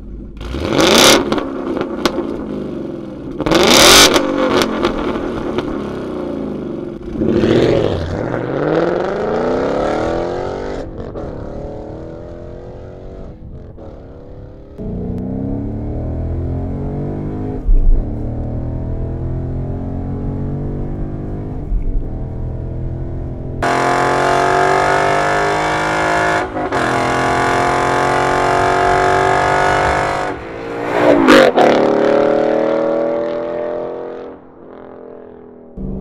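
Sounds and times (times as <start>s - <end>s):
car engine accelerating hard: 0.3s - 35.2s
car passing by: 28.8s - 33.0s.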